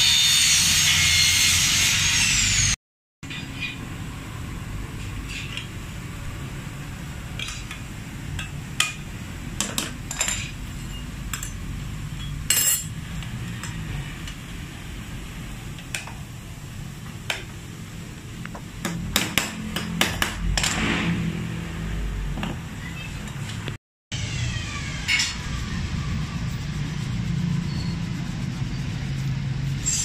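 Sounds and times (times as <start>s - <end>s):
metal tools clinking: 12.2s - 12.9s.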